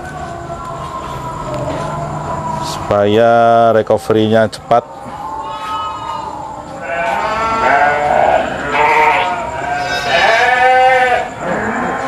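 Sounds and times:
sheep bleating: 5.4s - 12.0s.

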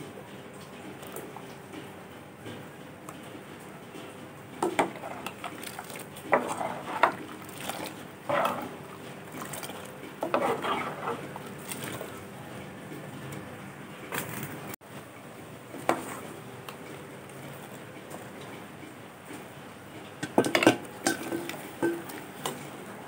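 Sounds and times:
metal ladle scraping a pot: 4.8s - 5.5s, 6.2s - 12.0s.

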